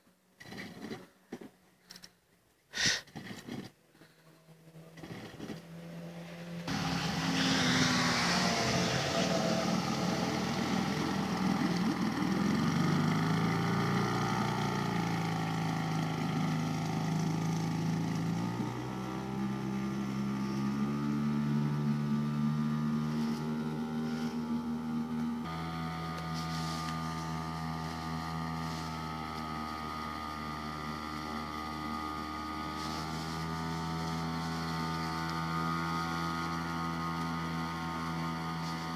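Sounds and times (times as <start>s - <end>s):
hiss: 2.8s - 3.1s, 6.7s - 11.8s
outboard motor running: 3.1s - 38.9s.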